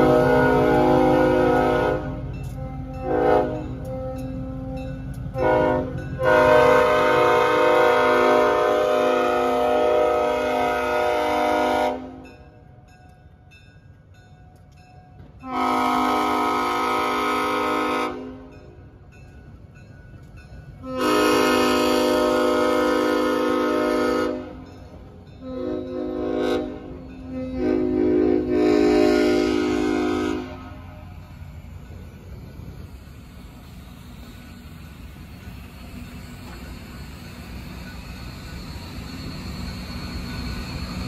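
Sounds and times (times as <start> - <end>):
steam locomotive whistle blasts: 0.0 - 12.3, 15.4 - 18.6, 20.8 - 24.7, 25.4 - 31.2.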